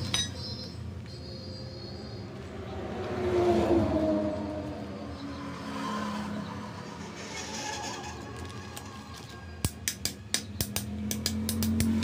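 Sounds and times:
spanner clicking on metal: 0:09.6 - 0:12.0.

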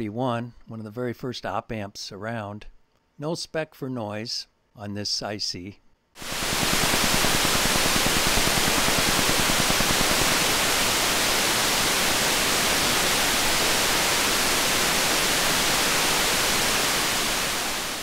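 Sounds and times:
steady electronic noise hiss: 0:06.2 - 0:18.0.

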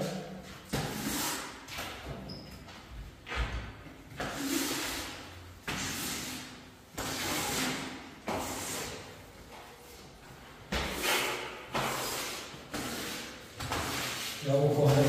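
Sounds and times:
squeegee scraping concrete floor: 0:00.0 - 0:02.6, 0:04.1 - 0:15.0.

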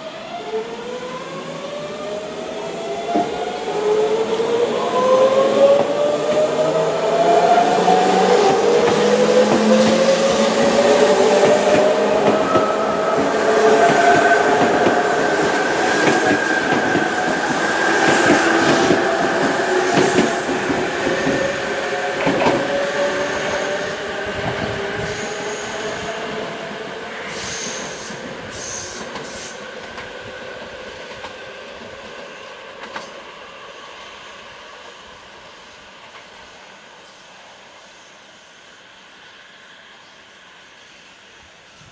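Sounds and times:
train wheels running: 0:04.9 - 0:26.4.

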